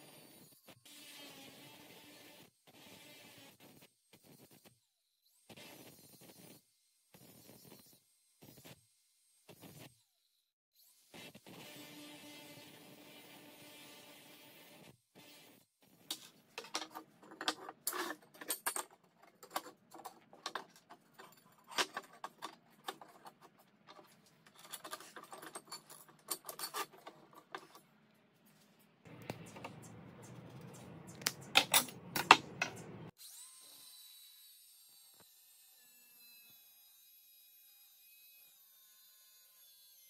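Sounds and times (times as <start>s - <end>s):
metal tubes clattering on workbench: 16.1s - 27.8s.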